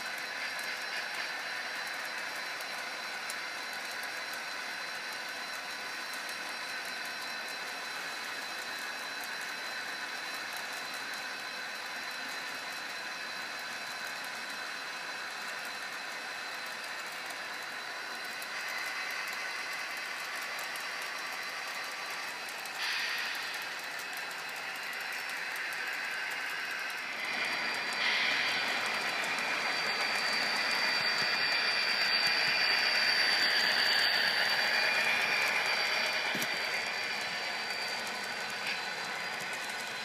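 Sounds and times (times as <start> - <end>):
model train cars rattling: 0.0 - 40.0
steady high tone: 25.8 - 40.0.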